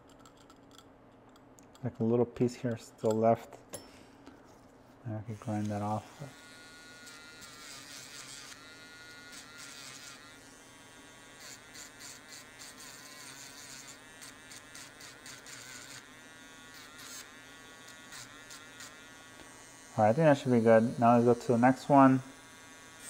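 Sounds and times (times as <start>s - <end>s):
grinding pen high whine: 5.3s - 23.0s
scratchy grinding on metal: 11.4s - 16.1s.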